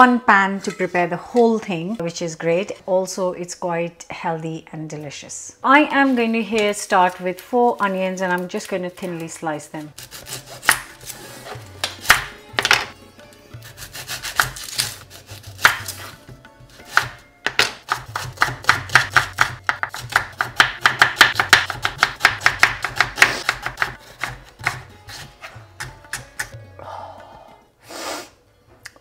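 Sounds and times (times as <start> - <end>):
knife slicing onions on board: 9.8 - 12.8, 13.6 - 26.6.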